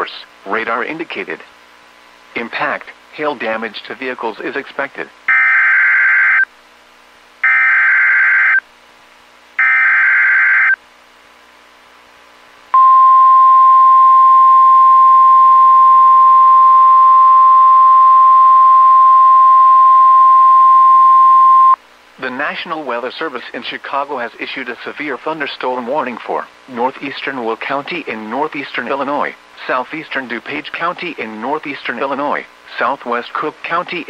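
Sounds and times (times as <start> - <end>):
steady alarm tone: 5.3 - 6.5, 7.4 - 8.6, 9.6 - 10.8, 12.8 - 21.8.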